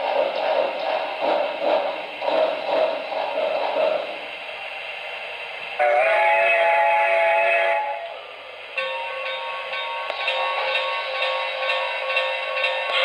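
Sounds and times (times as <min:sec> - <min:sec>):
soft steam hiss: 0:00.0 - 0:13.0
steam locomotive exhaust chuffs: 0:00.0 - 0:13.0
chime steam whistle: 0:05.8 - 0:08.1.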